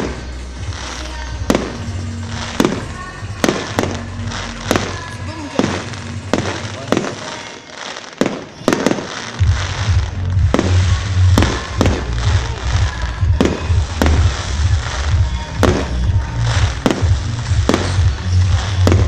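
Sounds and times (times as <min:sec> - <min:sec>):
bass-heavy music: 0:00.0 - 0:07.2, 0:08.7 - 0:19.0
fireworks bangs: 0:00.0 - 0:19.0.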